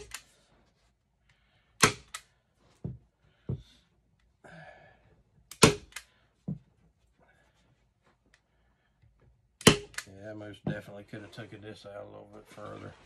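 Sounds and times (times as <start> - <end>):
staple gun snapping: 0.0 - 0.2, 1.8 - 2.2, 5.5 - 6.0, 9.6 - 10.1.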